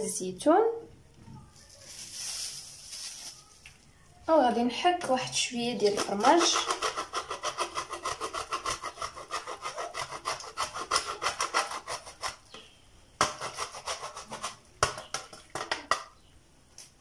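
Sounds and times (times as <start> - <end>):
cheese grater rasping: 5.8 - 12.4, 13.2 - 14.6.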